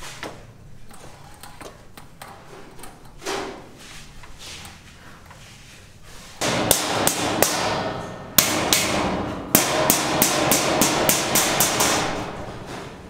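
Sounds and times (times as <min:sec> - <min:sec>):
hammer blows ringing: 0:06.4 - 0:12.6.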